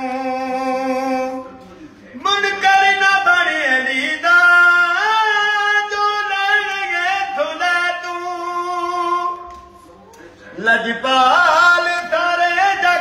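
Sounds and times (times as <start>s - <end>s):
old man singing unaccompanied: 0.0s - 1.6s, 2.2s - 9.5s, 10.5s - 13.0s.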